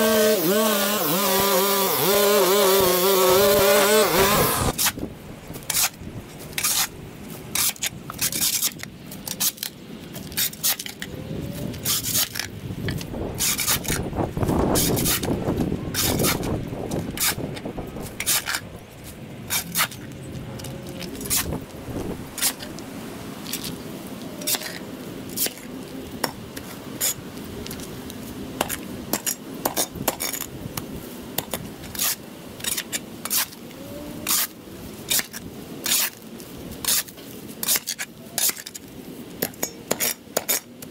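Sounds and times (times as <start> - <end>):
small engine running: 0.0 - 4.7.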